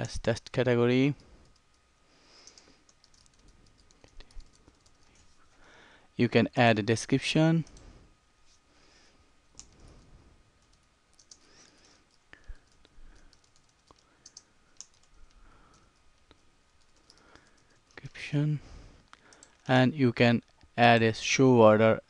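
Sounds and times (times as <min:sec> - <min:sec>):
computer keyboard typing: 0:02.4 - 0:05.3, 0:09.6 - 0:10.0, 0:10.6 - 0:18.2, 0:19.2 - 0:19.7.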